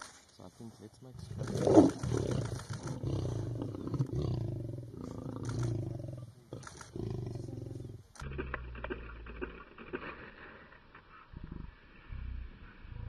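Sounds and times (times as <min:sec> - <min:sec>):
lion growling: 0:01.2 - 0:10.2.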